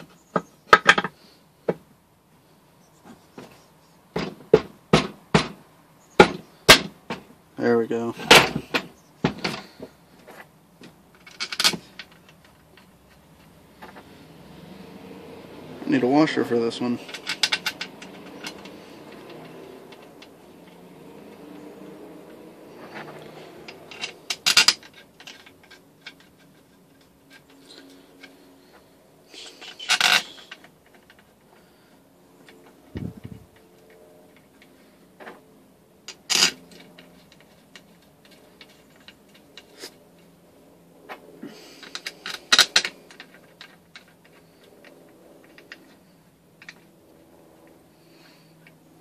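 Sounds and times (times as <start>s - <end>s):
metal bolts and tools clinking: 11.2s - 14.0s, 16.6s - 28.8s, 29.4s - 31.4s, 36.0s - 40.3s, 41.7s - 47.8s.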